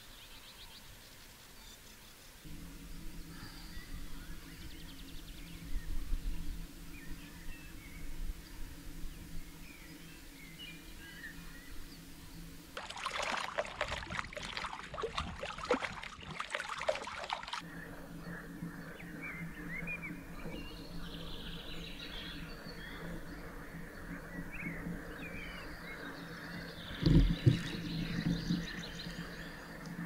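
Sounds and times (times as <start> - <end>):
small birds singing: 0.0 - 12.7, 17.6 - 30.0
steady low hum: 2.3 - 16.1, 17.5 - 30.0
water splashing and trickling: 12.8 - 17.6, 26.9 - 30.0.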